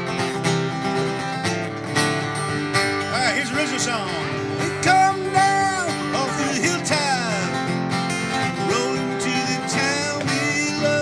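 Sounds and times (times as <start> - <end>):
acoustic guitars strumming: 0.0 - 11.0
man singing into a microphone: 4.6 - 7.7, 8.6 - 11.0.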